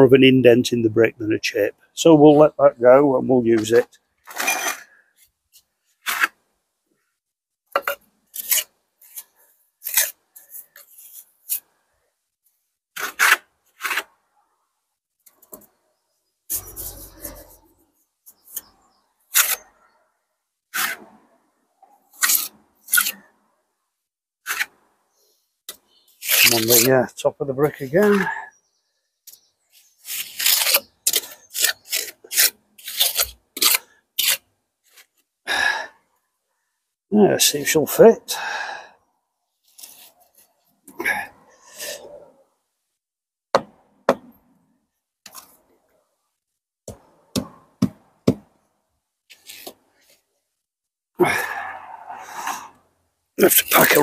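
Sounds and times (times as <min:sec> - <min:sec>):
trowel scraping mortar: 0:04.3 - 0:05.0, 0:06.0 - 0:06.4, 0:07.8 - 0:11.7, 0:13.0 - 0:14.1, 0:16.5 - 0:18.7, 0:19.3 - 0:19.7, 0:20.7 - 0:21.1, 0:22.1 - 0:23.3, 0:24.4 - 0:24.8, 0:26.2 - 0:27.0, 0:29.8 - 0:34.4, 0:53.4 - 0:54.0.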